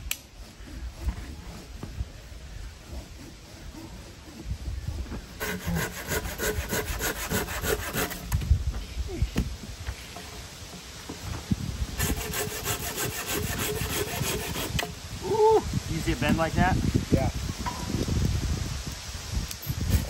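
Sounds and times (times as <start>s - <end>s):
hand saw cutting a branch: 0.0s - 8.4s, 12.0s - 15.0s.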